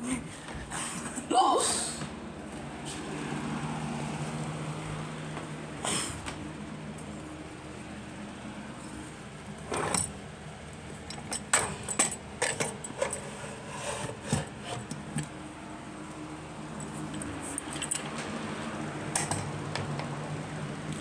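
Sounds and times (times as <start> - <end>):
sharp clicks and rattles: 16.8 - 18.4.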